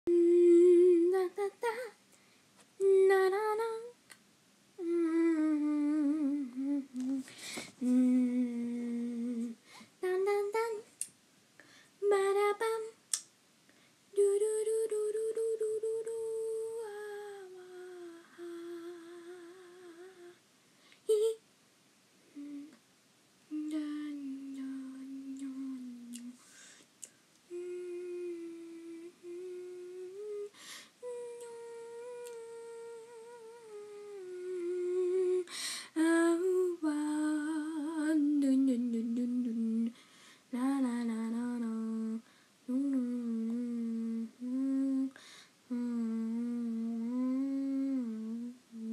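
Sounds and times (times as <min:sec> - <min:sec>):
person humming: 0:00.1 - 0:02.0, 0:04.8 - 0:10.8, 0:14.2 - 0:20.4, 0:21.1 - 0:21.4, 0:22.3 - 0:22.8, 0:23.5 - 0:26.4, 0:27.5 - 0:40.0, 0:40.6 - 0:48.9.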